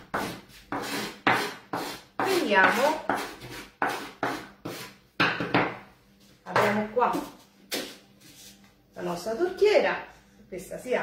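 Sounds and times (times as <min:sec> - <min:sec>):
hand rubbing floured board: 0:00.2 - 0:04.9.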